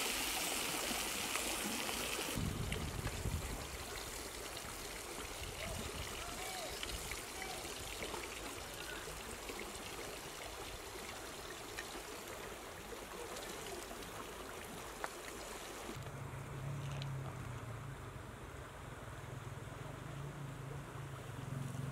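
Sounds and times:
steady rushing hiss: 0.0 - 5.6.

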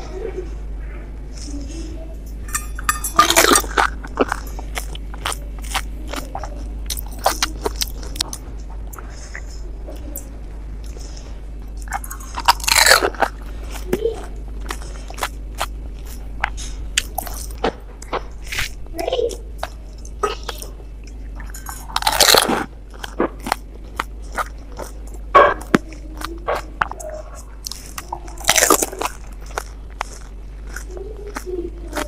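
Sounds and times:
crisp chewing crunches: 1.4 - 32.0
crisp shell cracking when bitten: 21.9 - 32.0.

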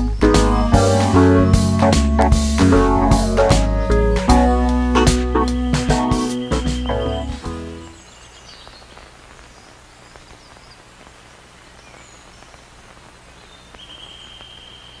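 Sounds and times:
music chord: 0.0 - 8.0
soft steady hiss: 0.0 - 15.0
faint bird chirps: 5.4 - 15.0.

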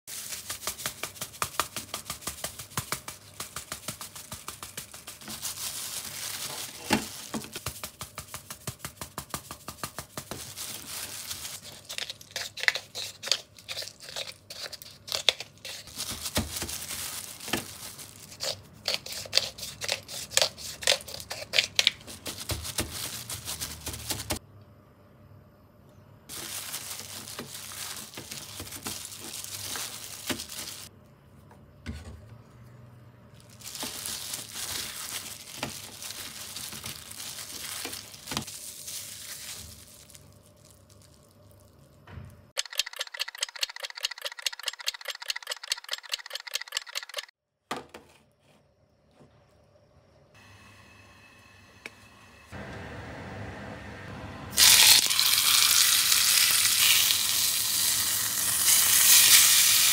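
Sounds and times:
plastic glove crinkling: 0.1 - 24.4, 26.3 - 30.9, 33.4 - 42.0, 54.6 - 59.9.

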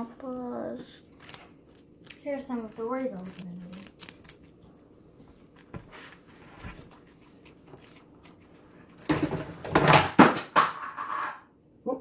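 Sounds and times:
guinea pig chewing celery: 0.2 - 5.6, 7.0 - 9.2.

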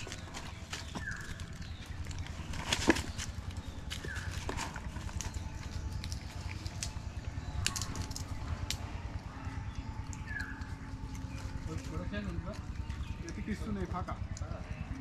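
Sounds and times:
crackles and taps in leaves: 0.0 - 15.0
steady low rumble: 0.0 - 15.0.

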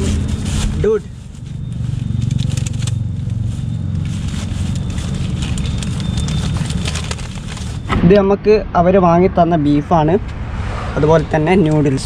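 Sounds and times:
plastic bag and newspaper crinkling: 0.0 - 7.9
steady low rumble: 0.0 - 12.0.

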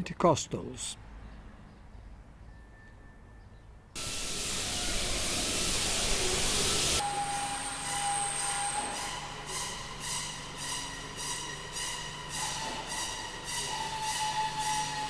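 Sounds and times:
loud steady hiss: 4.0 - 8.9.

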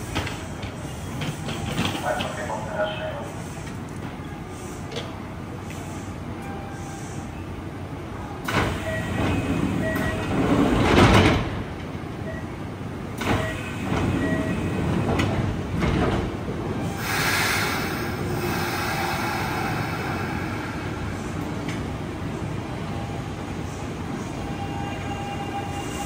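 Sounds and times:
train doors closing with thud: 0.0 - 7.3, 8.3 - 26.0
running train hiss: 16.9 - 22.5.

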